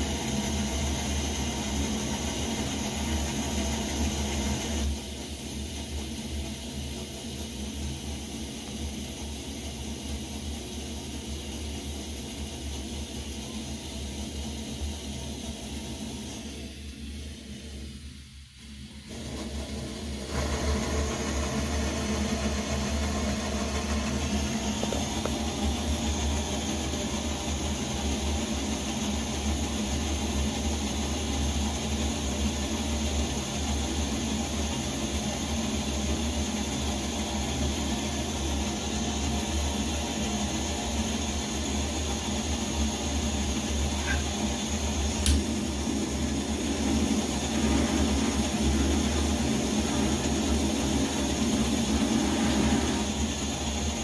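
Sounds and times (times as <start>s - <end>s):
camp stove burner rushing: 0.0s - 54.0s
gas torch flame: 0.0s - 54.0s
sharp click: 45.2s - 45.5s.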